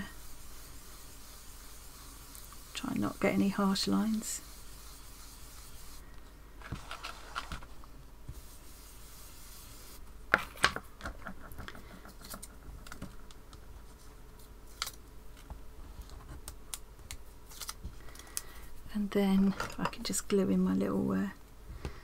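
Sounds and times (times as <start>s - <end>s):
brush scrubbing ink on card: 0.0s - 6.0s, 8.3s - 10.0s
paper handling: 6.6s - 7.7s, 17.1s - 18.4s.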